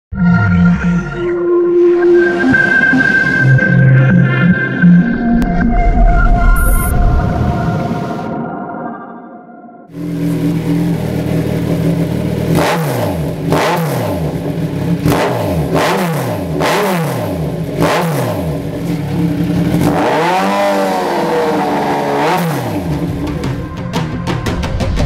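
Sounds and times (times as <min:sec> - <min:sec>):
motorcycle engine revving: 0:09.9 - 0:23.8.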